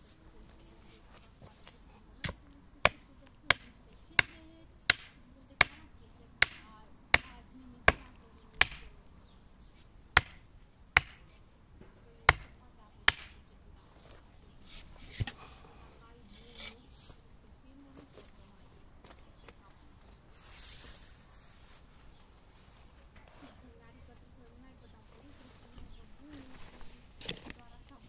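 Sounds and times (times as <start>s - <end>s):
sharp knocks: 11.0s - 11.2s.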